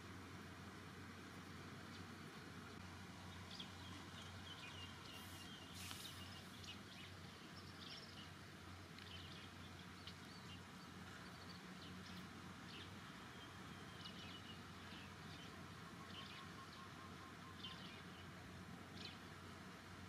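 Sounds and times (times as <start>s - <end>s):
soft hiss: 0.0s - 15.5s
low steady hum: 0.0s - 20.0s.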